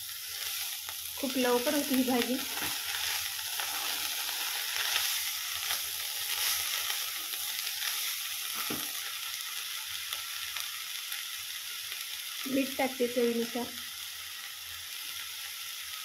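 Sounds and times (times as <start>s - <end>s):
leaves sizzling in hot oil: 0.0s - 16.0s
spatula stirring: 2.4s - 8.8s.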